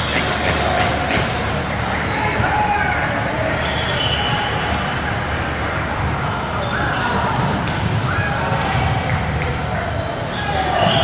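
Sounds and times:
volleyballs being hit and bouncing: 0.0s - 2.6s, 5.1s - 11.0s
indistinct voices in a hall: 0.0s - 11.0s.

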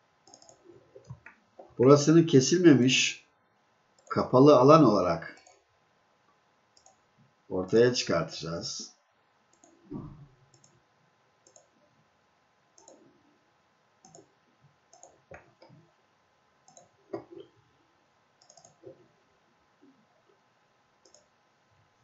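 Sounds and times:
faint mouse clicks: 0.2s - 1.8s, 6.8s - 7.0s, 9.5s - 10.8s, 11.4s - 11.8s, 12.8s - 13.0s, 14.0s - 14.3s, 14.9s - 15.8s, 16.6s - 17.5s, 18.4s - 19.0s, 21.0s - 21.3s.

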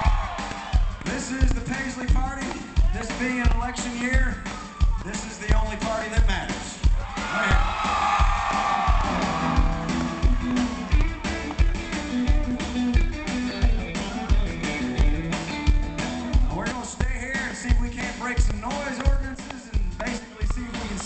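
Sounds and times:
country band playing: 0.0s - 21.0s
steady kick drum: 0.0s - 21.0s
repeating bass line: 6.9s - 20.0s.

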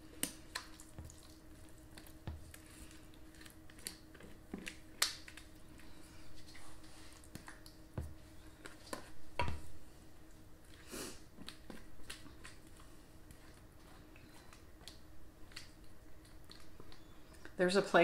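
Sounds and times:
faint steady hum: 0.0s - 18.0s
spatula scraping wet filling: 10.6s - 17.8s.

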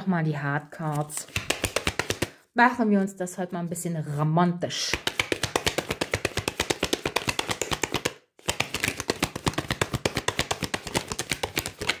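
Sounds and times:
cards being shuffled: 0.8s - 2.3s, 4.9s - 12.0s.

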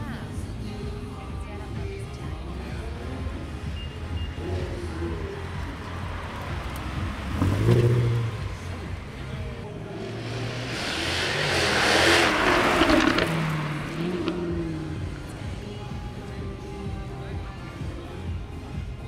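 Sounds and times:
sports car engine passing: 4.4s - 16.4s
car rushing past with tyre noise: 4.5s - 15.4s.

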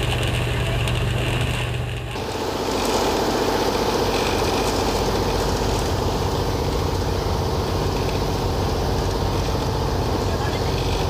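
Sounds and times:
boat engine throbbing: 0.0s - 11.0s
water and wind hiss: 2.2s - 11.0s.

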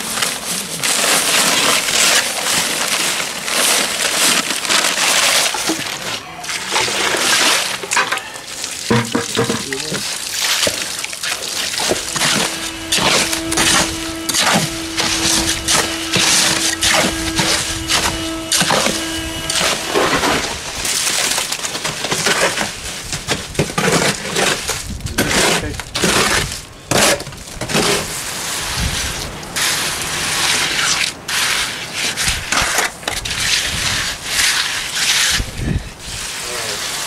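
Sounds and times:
gritty concrete scraping: 0.0s - 37.0s
steady hum: 11.7s - 20.9s.

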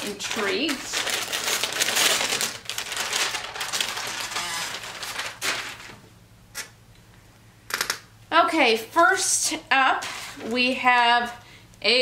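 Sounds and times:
wrapping paper crinkling: 0.0s - 6.0s.

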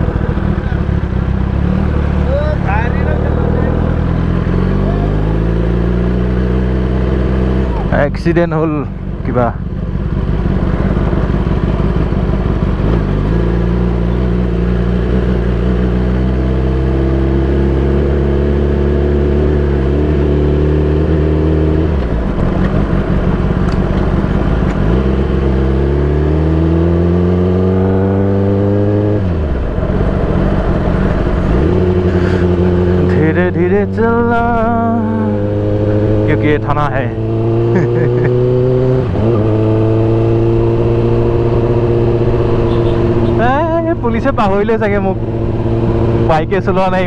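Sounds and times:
motorcycle engine accelerating: 0.0s - 47.0s.

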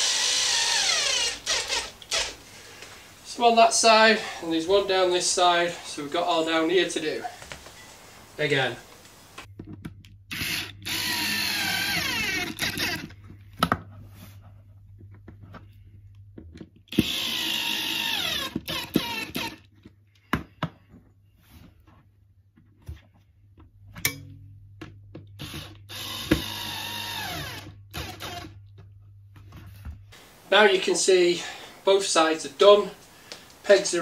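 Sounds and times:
cordless drill whining: 0.0s - 2.9s, 10.3s - 13.2s, 16.9s - 19.7s, 25.4s - 28.6s.

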